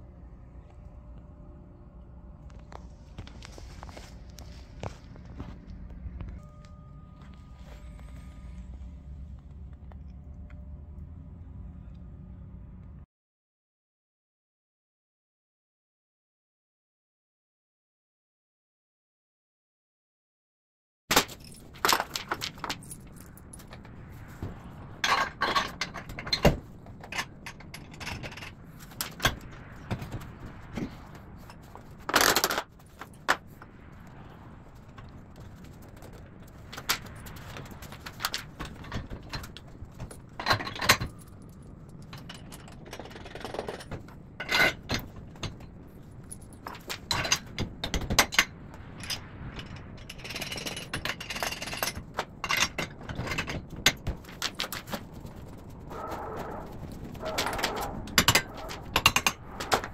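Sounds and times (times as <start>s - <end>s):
steel brackets clanking: 24.9s - 33.5s, 35.8s - 54.9s, 57.1s - 59.9s.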